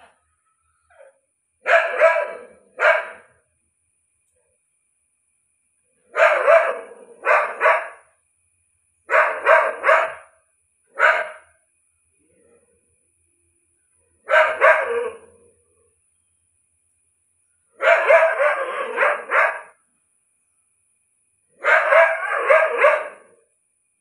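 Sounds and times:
dog barking: 0.9 - 3.4, 6.1 - 8.1, 9.1 - 11.6, 14.2 - 15.5, 17.8 - 19.8, 21.6 - 23.4.

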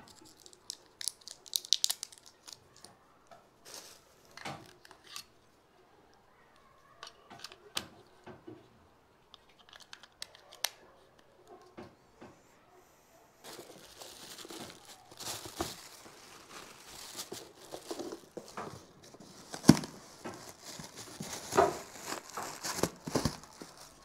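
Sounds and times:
plastic wrapping crinkling: 0.0 - 2.9, 3.6 - 5.3, 13.4 - 24.0.

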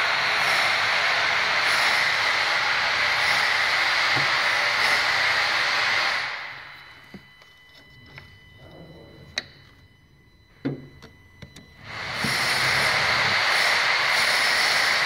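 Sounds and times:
faint high whine: 0.0 - 15.0
loud rushing hiss: 11.9 - 15.0.

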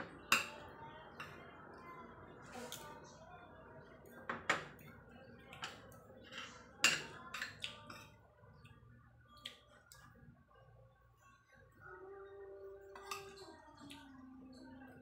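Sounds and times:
cutlery clinking on china plate: 12.9 - 13.5.

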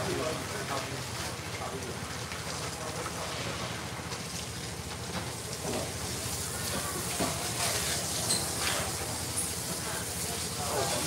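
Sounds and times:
faint crowd voices: 6.2 - 11.0.

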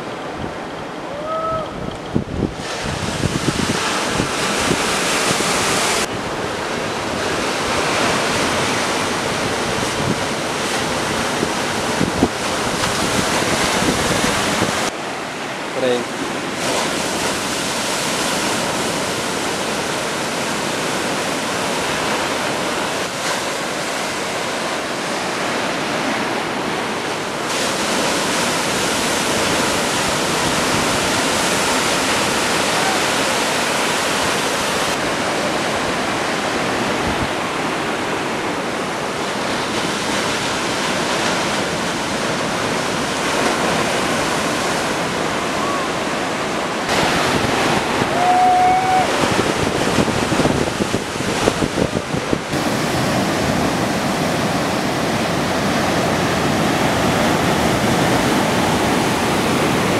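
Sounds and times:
surf rushing: 0.0 - 59.9
wind: 0.0 - 59.9.

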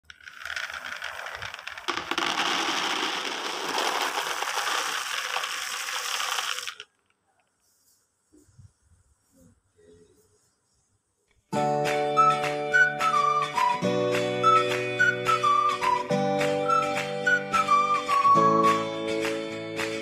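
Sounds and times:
peanuts rattling into plastic bowl: 0.0 - 7.0.

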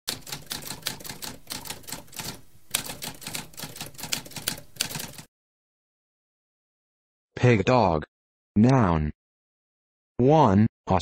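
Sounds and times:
typewriter typing: 0.1 - 5.3.

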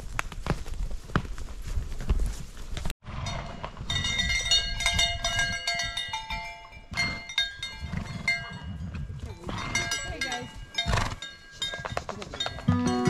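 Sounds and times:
stock bells clanking: 3.1 - 13.0.

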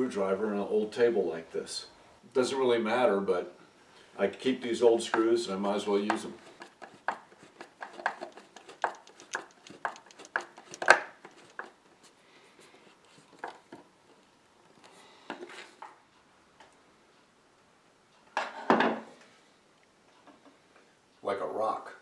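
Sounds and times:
screwdriver clicks and creaks: 6.6 - 12.1.

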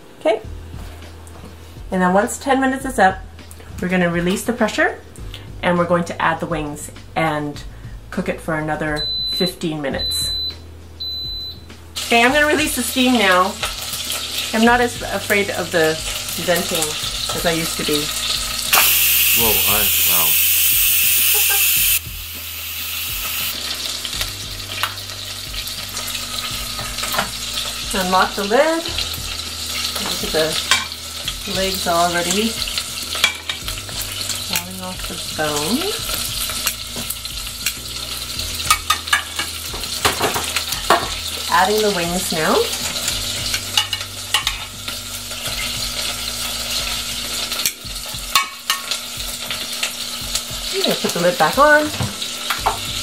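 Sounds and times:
pressure cooker venting steam: 15.4 - 24.1
steady hiss: 18.7 - 23.7.

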